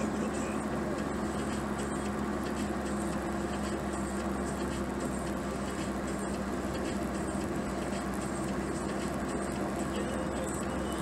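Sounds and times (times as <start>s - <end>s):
car engine hum: 0.0s - 11.0s
road noise: 0.0s - 11.0s.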